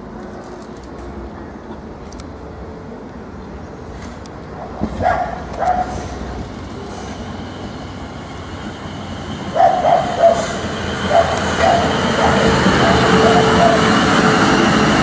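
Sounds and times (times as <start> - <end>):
train passing: 0.0 - 15.0
dog barking: 4.7 - 6.0, 9.6 - 13.9.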